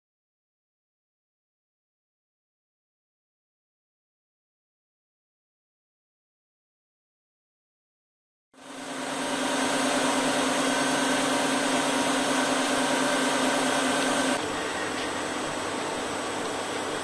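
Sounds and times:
machine motor whir: 8.6 - 14.5.

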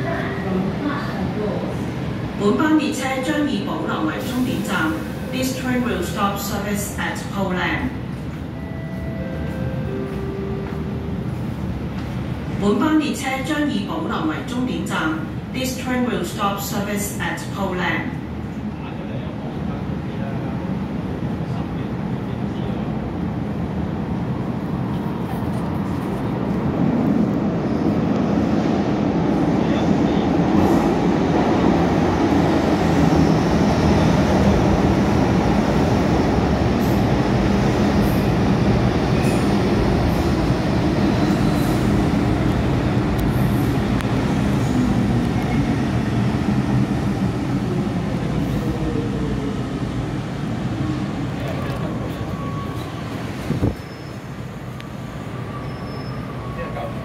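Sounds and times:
train rumbling into station: 0.0 - 57.0.

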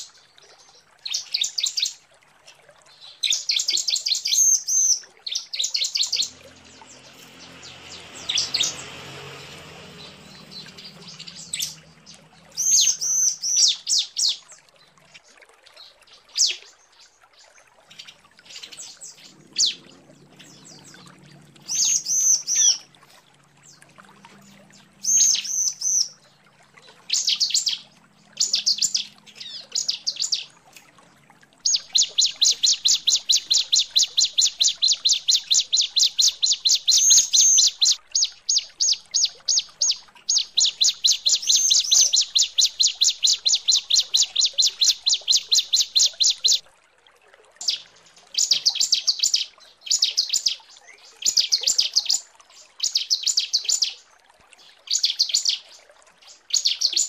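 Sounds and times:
bird chirping: 5.5 - 14.4, 31.6 - 46.6.

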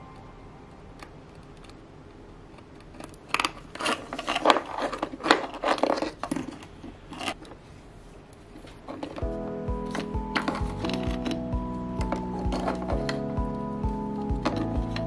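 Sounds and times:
plastic connectors scraping and clicking: 2.5 - 7.6.

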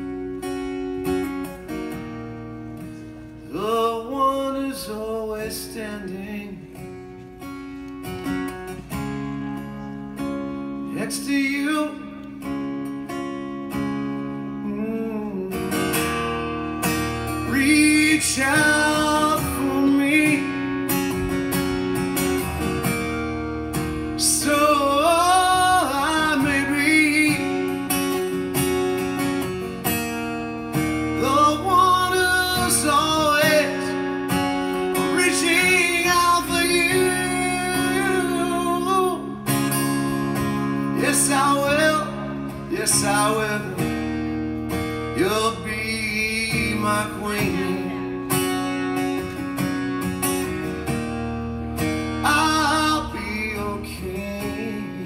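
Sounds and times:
strummed acoustic guitar: 0.0 - 55.0
man singing: 3.4 - 6.8, 10.7 - 12.5, 14.4 - 16.1, 17.2 - 21.2, 24.1 - 28.3, 31.0 - 44.2, 44.9 - 48.4, 52.2 - 55.0.

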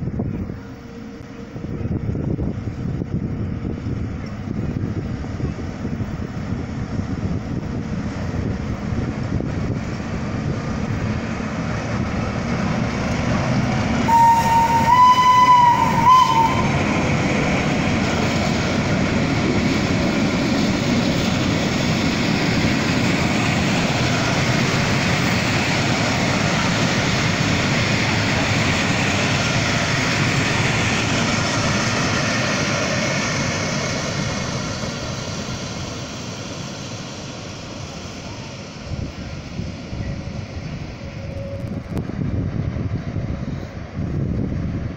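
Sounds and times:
train horn blast: 14.0 - 16.9.

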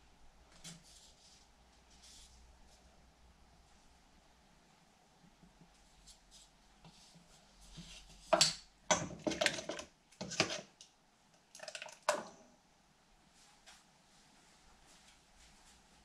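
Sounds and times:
ladle scraping metal bowl: 9.3 - 10.7.

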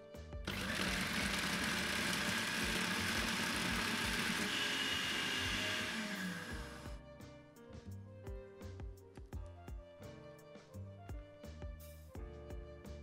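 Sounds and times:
food processor running: 0.5 - 7.0.

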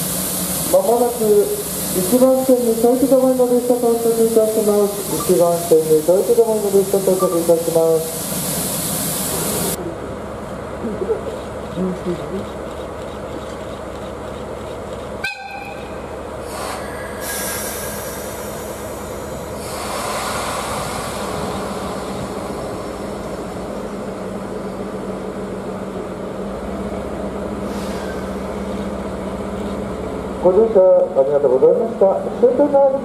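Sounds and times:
bursts of hissing: 0.0 - 9.8, 16.4 - 24.0
locomotive engine hum: 0.0 - 33.0.

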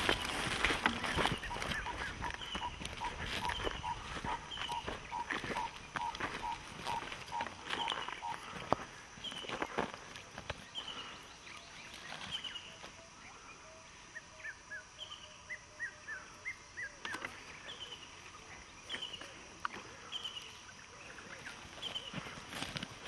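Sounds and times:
footsteps on dry leaves: 0.0 - 11.1, 21.2 - 23.0.

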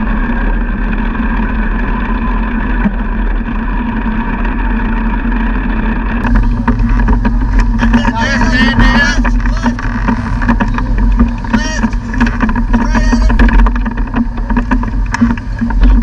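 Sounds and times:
race car engine running: 0.0 - 16.0.

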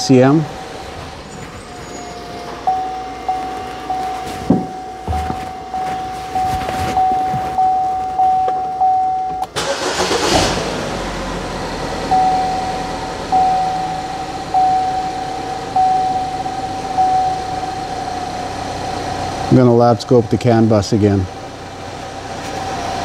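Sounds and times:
car engine cranking and running: 0.0 - 23.0
car warning chime: 1.9 - 10.3, 11.3 - 20.7.

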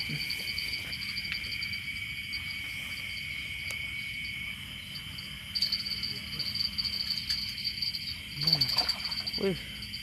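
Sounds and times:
night insects chirring: 0.0 - 10.0.

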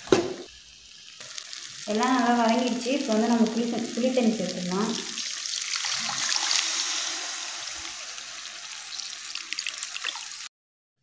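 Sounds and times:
liquid trickling and splashing: 5.1 - 10.5.

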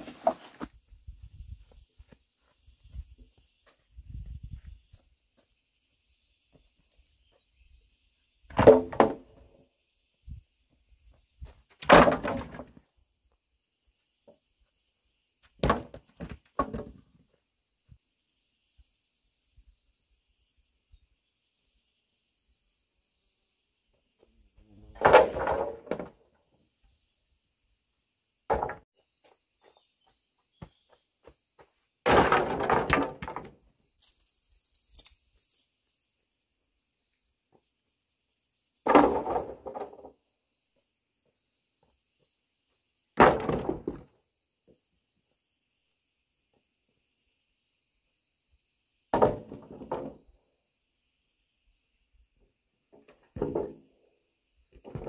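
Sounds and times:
bamboo clattering: 0.0 - 0.8, 8.5 - 9.4, 11.7 - 12.8, 25.0 - 26.2, 28.5 - 28.8, 32.0 - 35.6, 38.8 - 40.1, 49.2 - 50.2, 52.9 - 53.9.

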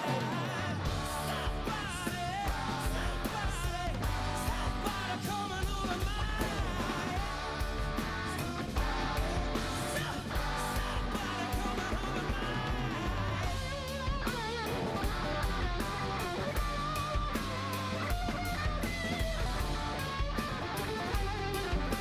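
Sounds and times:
man singing: 0.0 - 16.6
electric bass: 0.0 - 22.0
electric guitar: 0.0 - 22.0.

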